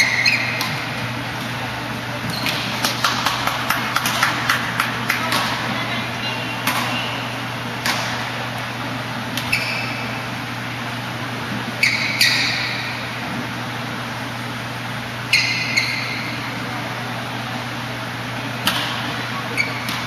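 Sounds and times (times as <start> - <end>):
shoes squeaking on court: 0.0 - 3.0, 9.4 - 10.2, 11.7 - 13.0, 15.3 - 16.5, 19.4 - 20.0
steady low hum: 0.0 - 20.0.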